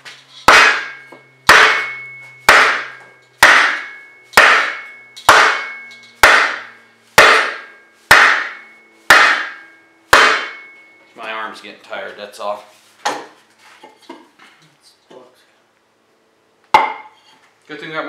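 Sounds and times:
hammer striking wooden block: 0.5s - 10.8s, 16.7s - 17.1s.

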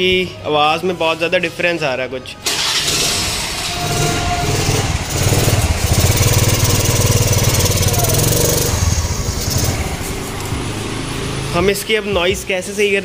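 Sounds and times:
scooter engine running noisily: 2.4s - 12.4s.

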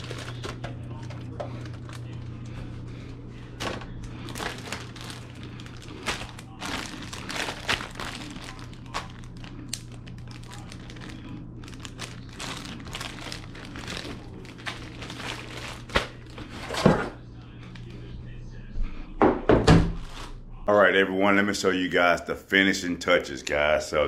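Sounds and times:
plastic bags crinkling: 0.0s - 2.6s, 3.6s - 17.1s, 19.9s - 20.4s
steady low hum: 0.0s - 24.0s.

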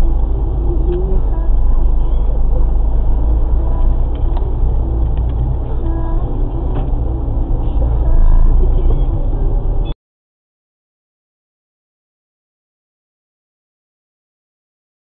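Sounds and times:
car engine and road rumble: 0.0s - 10.0s
faint traffic tones: 0.0s - 10.0s.

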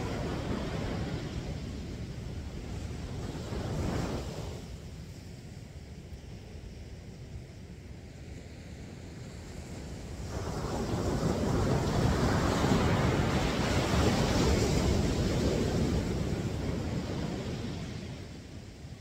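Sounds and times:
wave breaking on beach: 0.0s - 4.8s, 10.0s - 18.5s.

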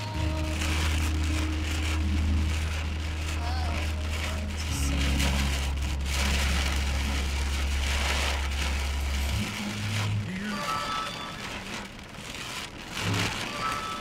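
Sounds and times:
low hum: 0.0s - 10.4s
heavy rain on a car: 0.0s - 14.0s.

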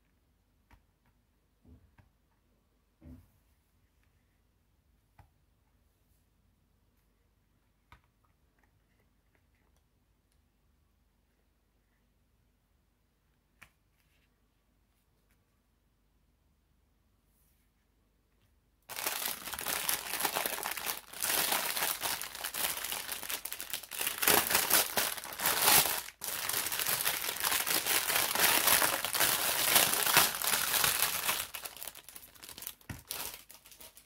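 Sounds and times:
plastic packaging crinkling: 18.9s - 34.0s.

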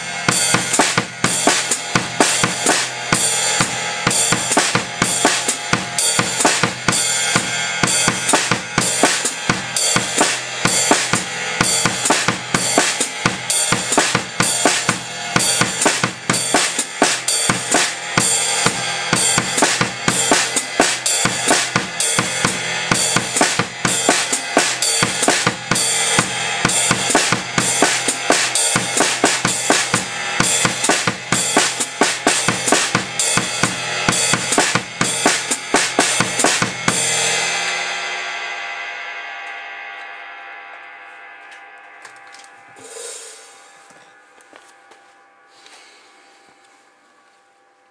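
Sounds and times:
bass drum: 0.0s - 37.7s
ride cymbal: 0.0s - 41.8s, 42.7s - 44.2s
foot-closed hi-hat: 0.0s - 43.9s.

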